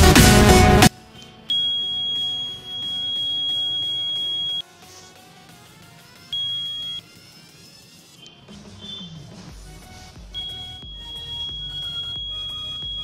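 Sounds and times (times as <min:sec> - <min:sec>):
high-pitched buzzer beeping: 0:01.1 - 0:04.6, 0:06.3 - 0:07.2, 0:10.3 - 0:13.0.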